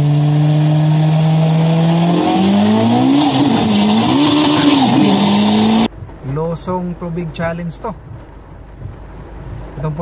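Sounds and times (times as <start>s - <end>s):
sports car engine revving: 0.0s - 6.0s.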